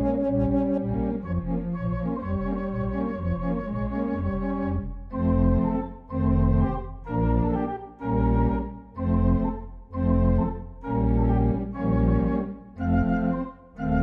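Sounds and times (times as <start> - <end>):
organ chords: 0.0 - 14.0.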